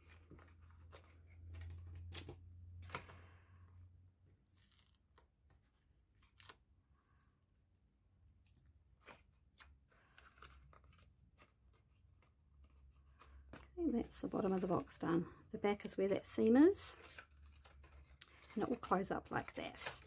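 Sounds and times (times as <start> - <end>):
tape backing peeled off: 4.4 - 5.2.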